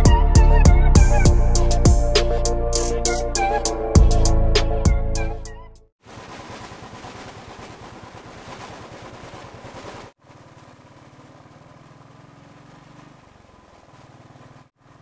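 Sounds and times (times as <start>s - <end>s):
motorcycle engine running: 6.1s - 15.0s.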